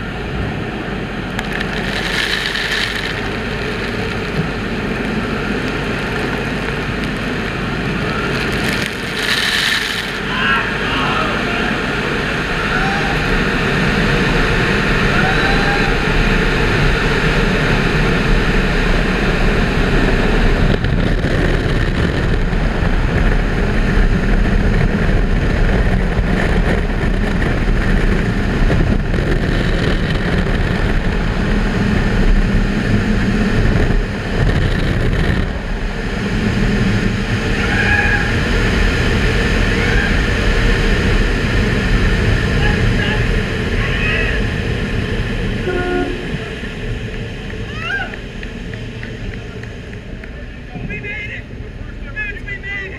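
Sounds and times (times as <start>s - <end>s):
car wash water spray: 1.4s - 10.8s.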